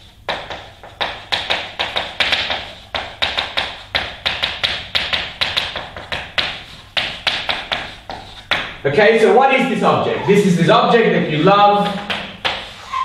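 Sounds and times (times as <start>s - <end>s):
chalk writing on blackboard: 0.0s - 8.8s, 11.9s - 13.0s.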